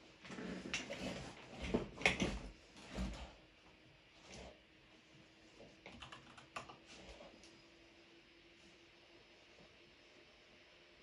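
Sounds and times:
mechanical keyboard typing: 5.9s - 6.8s.

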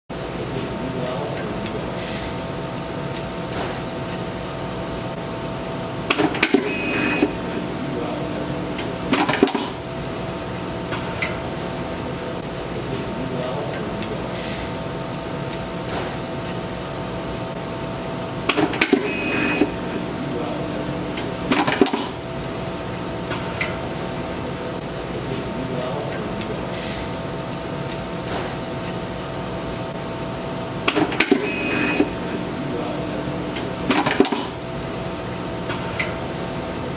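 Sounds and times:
vibratory feeder bowl hum: 0.1s - 36.9s
brief high whine: 6.5s - 9.4s, 18.9s - 21.4s.

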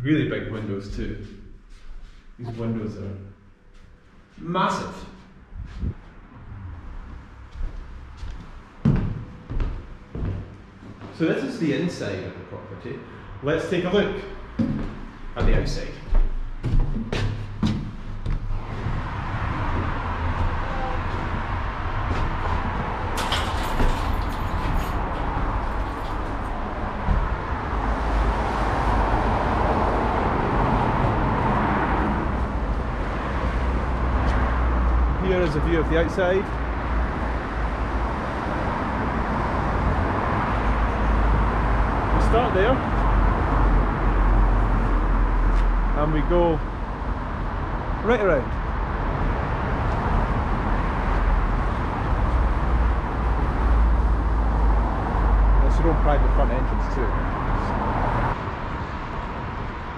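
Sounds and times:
road traffic rumble: 0.0s - 59.9s
low rumble: 5.0s - 9.4s.

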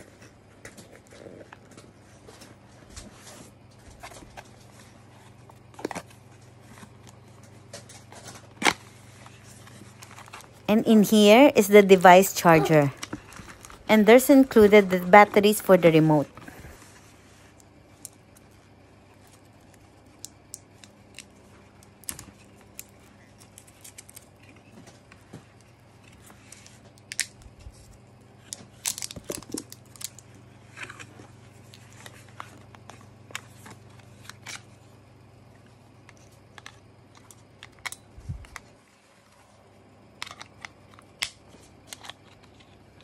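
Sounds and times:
plastic wrap crinkling and tearing: 28.5s - 32.2s.

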